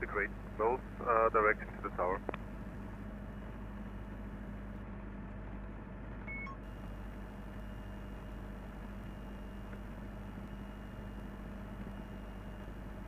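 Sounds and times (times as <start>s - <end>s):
small plane engine idling: 0.0s - 13.0s
short beep: 6.3s - 6.7s.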